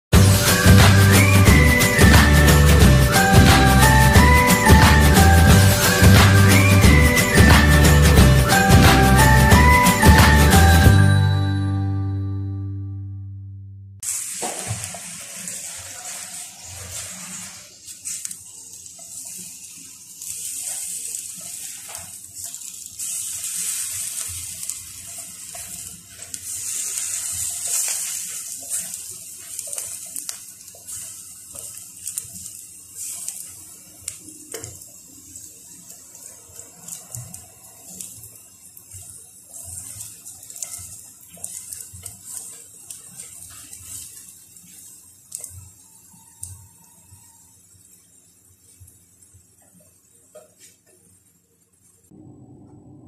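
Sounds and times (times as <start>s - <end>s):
food sizzling in oil: 0.2s - 11.7s, 14.0s - 52.1s
spatula clicking and scraping: 39.7s - 45.6s.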